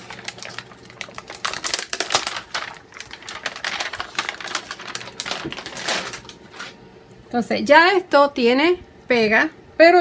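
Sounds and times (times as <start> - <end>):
plastic ornaments clattering: 0.5 - 6.3.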